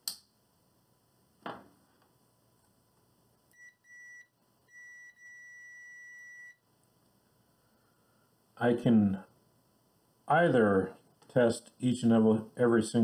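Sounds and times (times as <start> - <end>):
multimeter continuity beeps: 3.5 - 6.6.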